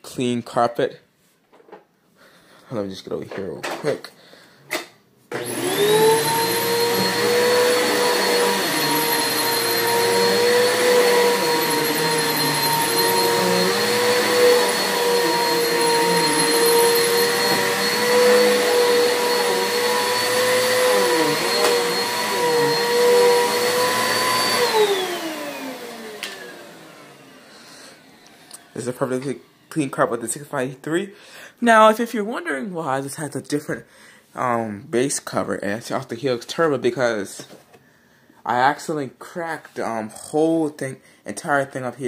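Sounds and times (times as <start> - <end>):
vacuum cleaner motor whining: 5.3 - 29.7.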